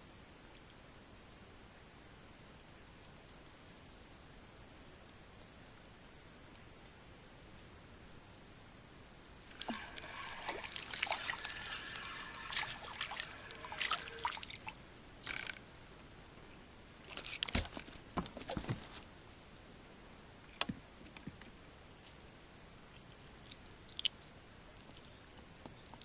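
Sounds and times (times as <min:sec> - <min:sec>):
water splashing and trickling: 0:09.5 - 0:15.6.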